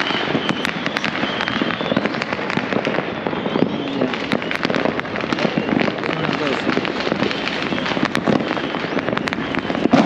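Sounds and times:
fireworks crackling and banging: 0.0s - 10.0s.

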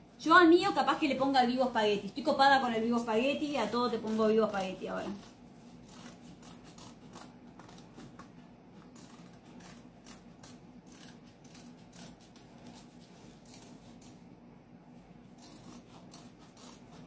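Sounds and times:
scissors snipping fabric: 2.9s - 14.2s, 15.3s - 17.0s.

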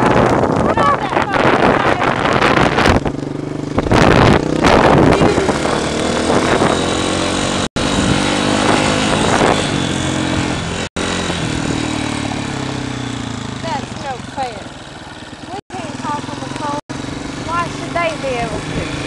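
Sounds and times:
wind on microphone: 0.0s - 12.9s, 18.0s - 19.0s
dirt bike engine running: 0.0s - 19.0s.

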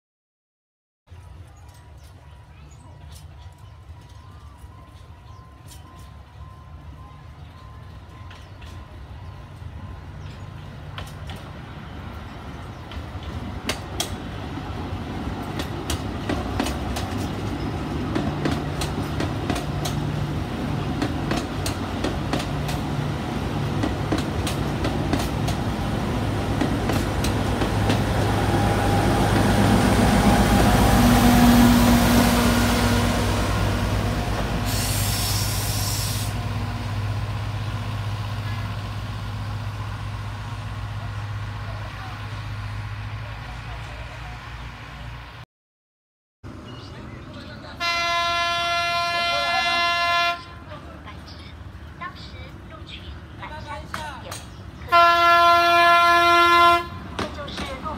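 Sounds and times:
wheels clicking on rails: 1.1s - 6.4s, 57.2s - 57.9s
diesel locomotive engine: 1.1s - 45.4s, 46.4s - 57.9s
brief hiss: 34.6s - 36.4s.

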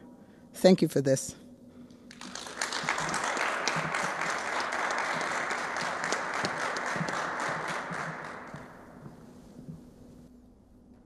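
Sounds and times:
crowd applause: 2.1s - 9.4s.

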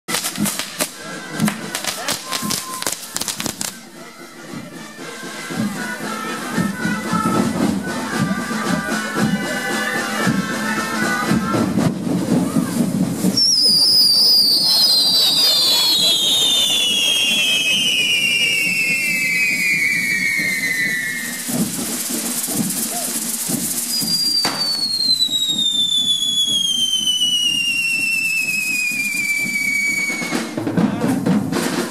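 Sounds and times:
hiss of spraying sparks: 0.1s - 3.8s, 12.2s - 30.1s
music: 0.2s - 31.9s
firework whistle falling in pitch: 2.0s - 3.6s, 13.2s - 21.9s, 22.7s - 30.6s.

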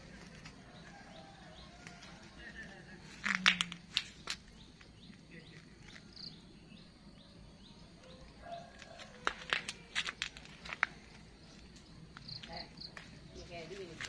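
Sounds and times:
leaves rustling: 8.9s - 14.0s.

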